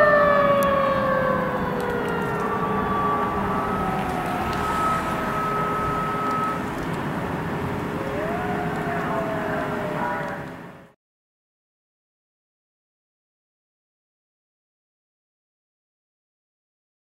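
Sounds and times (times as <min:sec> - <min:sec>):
distant siren wailing: 0:00.0 - 0:11.0
traffic noise: 0:00.0 - 0:11.0.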